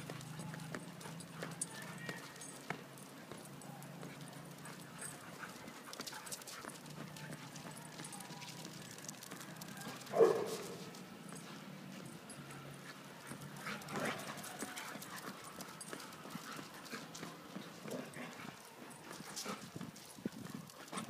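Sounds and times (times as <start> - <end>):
footfalls and paw steps on concrete: 0.0 - 21.0
dog bark: 10.1 - 10.9.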